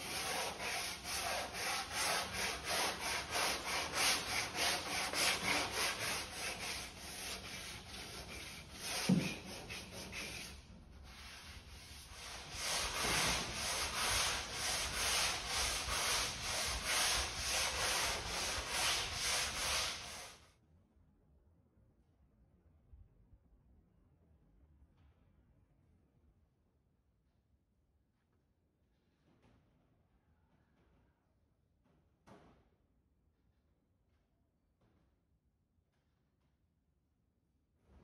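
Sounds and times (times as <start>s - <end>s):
sanding board scraping: 0.0s - 20.4s
knock: 31.8s - 32.8s.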